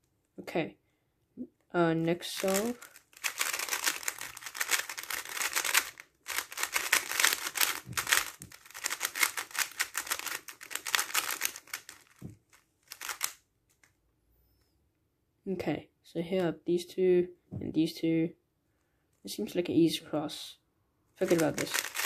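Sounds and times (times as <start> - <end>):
speedcube turning clatter: 2.2 - 13.4, 21.2 - 22.0.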